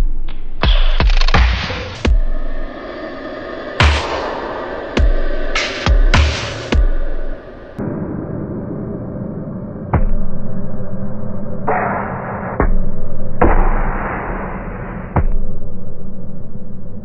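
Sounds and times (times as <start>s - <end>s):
hiss: 1.7s - 7.8s
muffled low rumbling: 2.1s - 8.0s.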